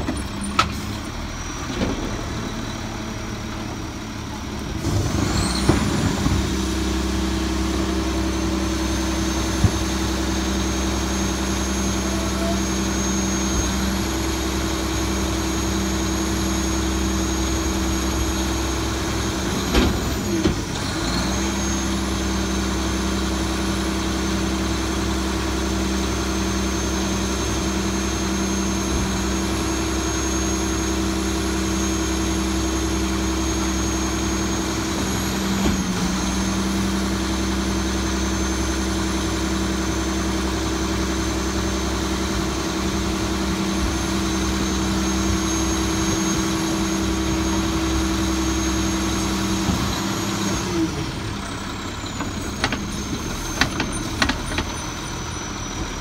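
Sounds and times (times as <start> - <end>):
garbage truck engine running: 0.0 - 56.0
high hydraulic whine: 0.0 - 56.0.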